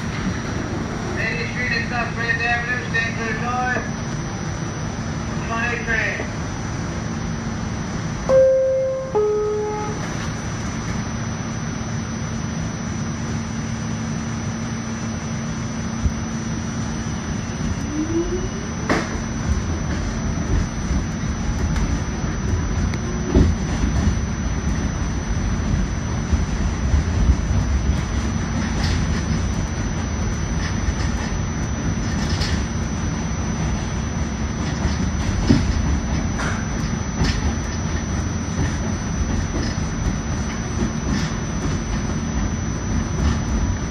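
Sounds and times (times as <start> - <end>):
wheels rumbling on rails: 0.0 - 43.9
two-tone door chime: 8.3 - 10.1
traction motor whine: 8.3 - 43.9.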